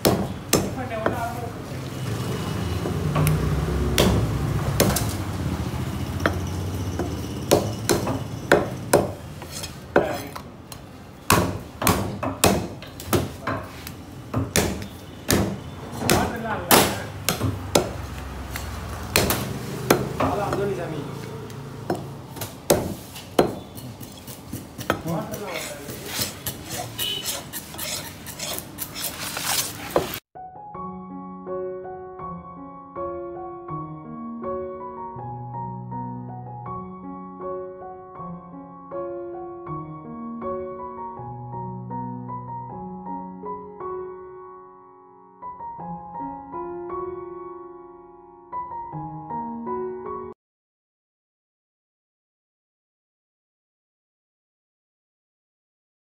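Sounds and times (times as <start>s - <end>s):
knife chopping on wooden block: 0.0s - 1.2s, 4.0s - 5.2s, 7.0s - 10.5s, 11.3s - 20.7s, 21.9s - 30.2s.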